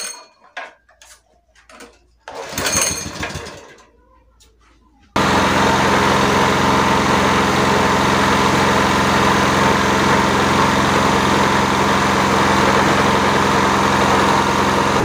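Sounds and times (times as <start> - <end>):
grinding mill motor running: 5.2 - 15.0.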